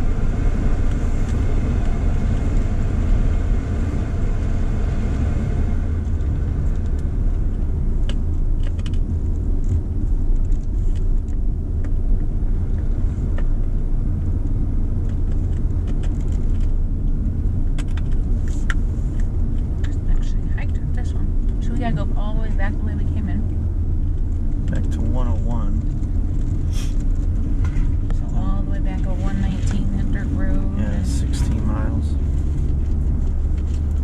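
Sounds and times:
car road and engine rumble: 0:00.0 - 0:34.0.

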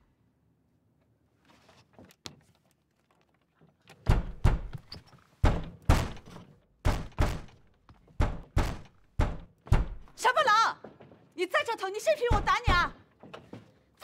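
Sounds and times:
child banging on a door: 0:08.2 - 0:10.1, 0:12.3 - 0:13.0.

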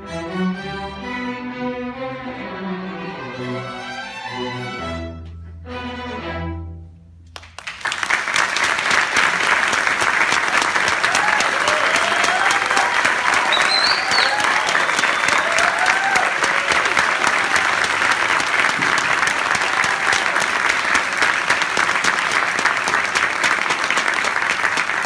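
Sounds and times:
audience applauding: 0:07.3 - 0:25.0
people cheering: 0:07.8 - 0:25.0
short whistle: 0:13.4 - 0:15.4.

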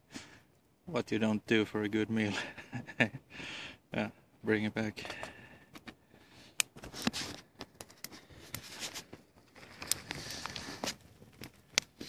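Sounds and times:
rustling: 0:06.8 - 0:12.0.

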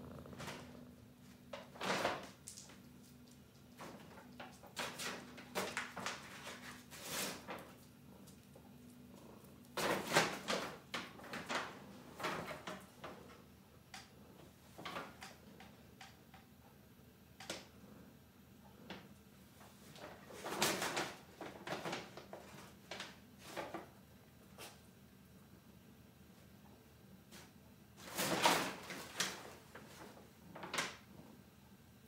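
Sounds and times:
paper bag rustling: 0:04.8 - 0:07.8.

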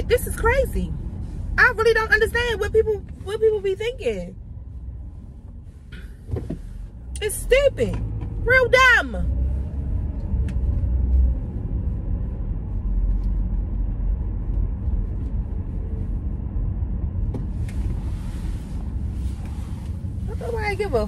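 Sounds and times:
car cabin road rumble: 0:00.0 - 0:21.0.

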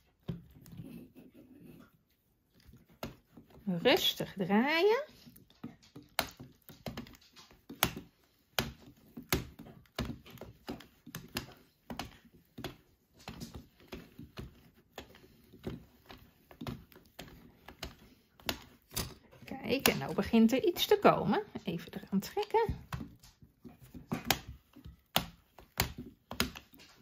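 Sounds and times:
knitting mill clicking: 0:02.9 - 0:27.0.

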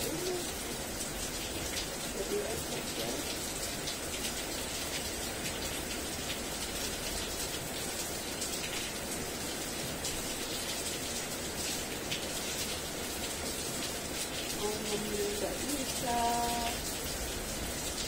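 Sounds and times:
steady rain pouring: 0:00.0 - 0:18.0.

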